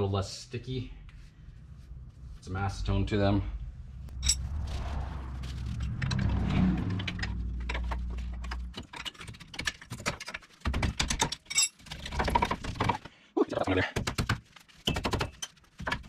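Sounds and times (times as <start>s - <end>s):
steady low rumble: 0.0s - 8.9s.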